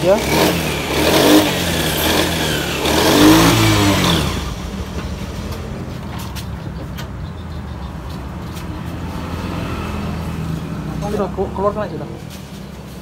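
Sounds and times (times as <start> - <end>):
scooter engine revving and idling: 0.0 - 6.8.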